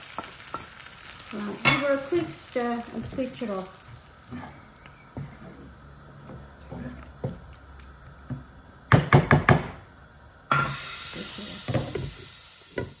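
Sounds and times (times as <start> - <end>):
wooden spatula stirring in pan: 0.0 - 8.5
steady hiss: 0.0 - 13.0.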